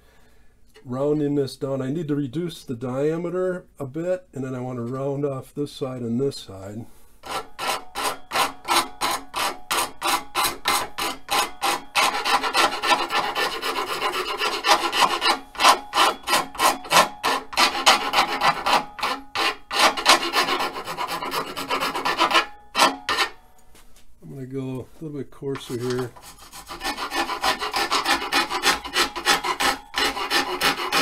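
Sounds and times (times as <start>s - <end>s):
hand file rasping on wood: 7.2s - 23.4s, 25.6s - 31.0s.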